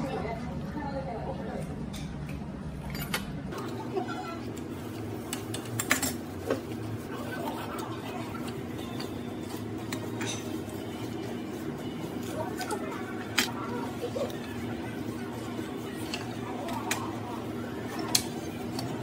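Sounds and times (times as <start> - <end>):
low background hum: 0.0 - 19.0
spoon and chopsticks clinking dishes: 7.7 - 17.2.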